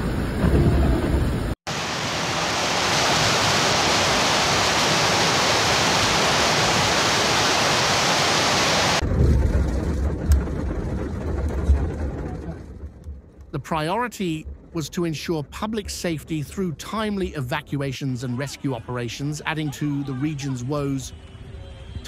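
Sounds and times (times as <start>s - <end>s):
heavy rain: 0.0s - 12.9s
low rumble: 9.0s - 17.7s.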